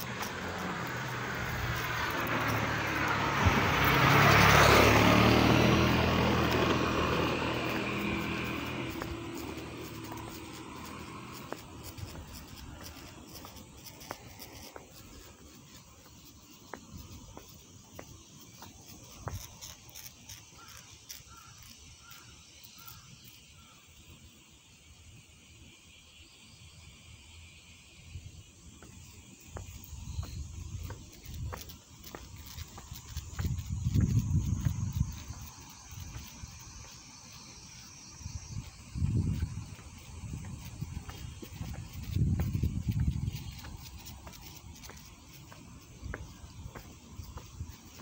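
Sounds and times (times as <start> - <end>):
vehicle passing by: 0.0 - 15.8, 30.2 - 48.0
wind rumbling on microphone: 0.0 - 16.0, 29.6 - 37.0, 38.1 - 48.0
footsteps on asphalt: 0.0 - 23.1, 28.7 - 48.0
cicadas droning: 0.0 - 48.0.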